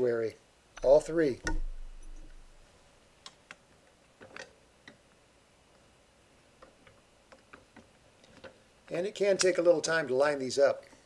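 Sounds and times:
faint plastic clicks and knocks: 0:06.6 - 0:08.6.

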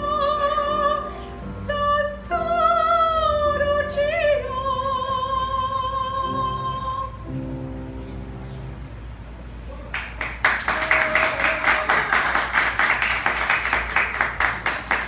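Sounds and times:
audience applauding: 0:09.9 - 0:15.0.

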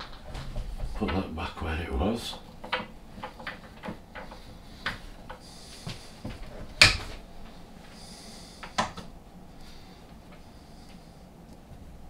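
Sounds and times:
lathe metallic clicks and knocks: 0:02.3 - 0:05.4.

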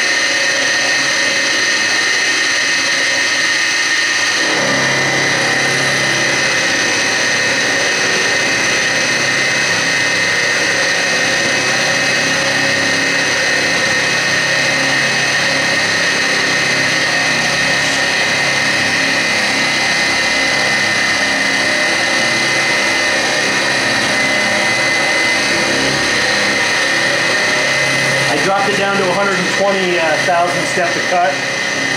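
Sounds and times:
milling machine cutting metal whine: 0:00.0 - 0:31.9.

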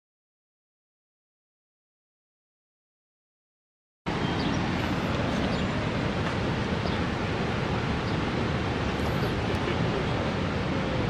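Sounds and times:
waterfall roaring: 0:04.1 - 0:11.0.

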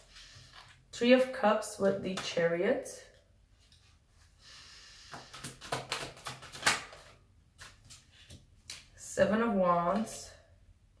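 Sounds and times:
soft breath: 0:04.2 - 0:05.6
cards tapping on wooden table: 0:05.1 - 0:07.1.

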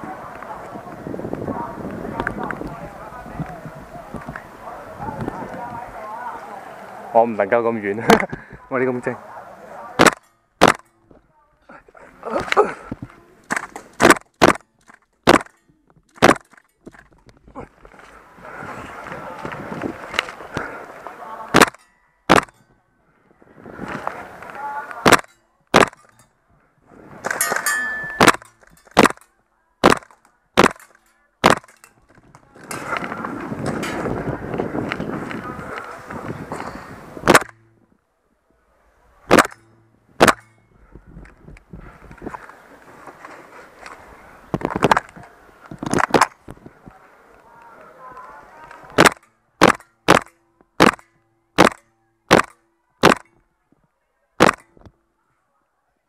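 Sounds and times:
airsoft rifle firing single shots: 0:10.0 - 0:10.9, 0:29.8 - 0:31.8, 0:39.3 - 0:39.6, 0:40.2 - 0:40.4, 0:49.0 - 0:53.3, 0:54.4 - 0:54.7
airsoft rifle shots: 0:10.0 - 0:11.0, 0:13.4 - 0:15.6, 0:16.2 - 0:16.7, 0:21.5 - 0:22.6, 0:25.0 - 0:26.1, 0:27.3 - 0:31.8, 0:37.2 - 0:37.7, 0:39.3 - 0:40.6, 0:49.0 - 0:53.4, 0:54.4 - 0:54.8.

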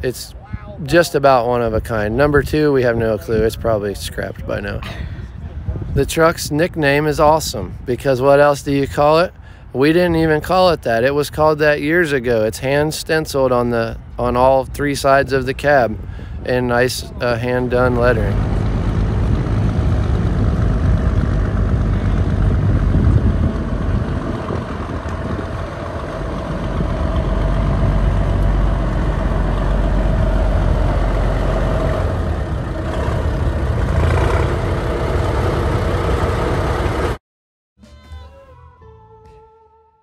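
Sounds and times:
diesel truck engine: 0:15.0 - 0:37.2.

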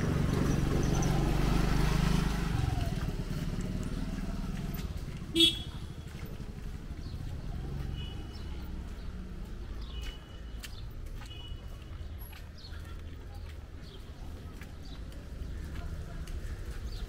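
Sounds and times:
motorcycle passing by: 0:00.0 - 0:09.9.

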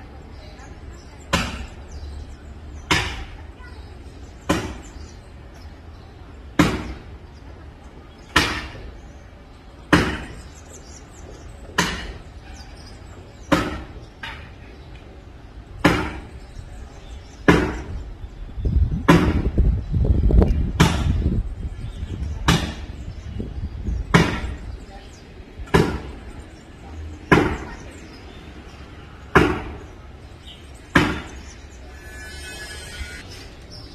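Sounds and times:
axe chopping wood: 0:04.5 - 0:04.8, 0:06.6 - 0:07.0, 0:08.3 - 0:08.8, 0:09.9 - 0:10.4, 0:13.5 - 0:14.0, 0:15.8 - 0:16.3, 0:17.5 - 0:17.9, 0:19.1 - 0:19.5, 0:20.8 - 0:21.1, 0:22.5 - 0:22.8, 0:25.6 - 0:26.1, 0:27.3 - 0:27.6, 0:29.3 - 0:29.8, 0:30.9 - 0:31.3.

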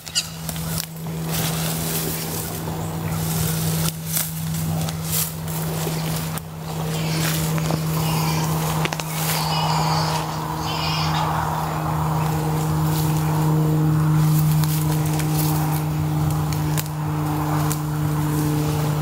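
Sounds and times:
footsteps crunching through dry grass: 0:00.0 - 0:19.0
steady low hum: 0:00.0 - 0:19.0.

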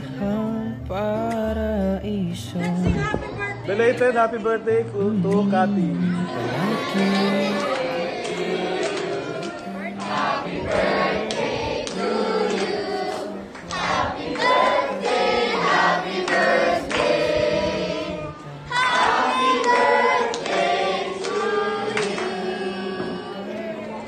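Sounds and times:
group singing in chorus: 0:05.8 - 0:24.0.

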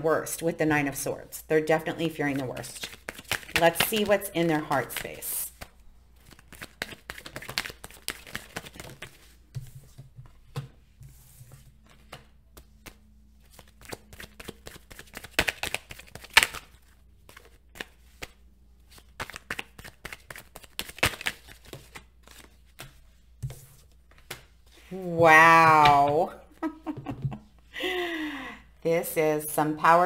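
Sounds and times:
cards being shuffled: 0:02.3 - 0:10.7, 0:11.5 - 0:24.8.

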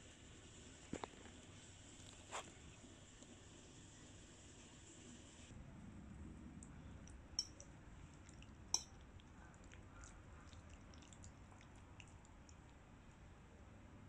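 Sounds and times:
fork clinking on ceramic plate: 0:07.4 - 0:07.6, 0:08.7 - 0:09.0.

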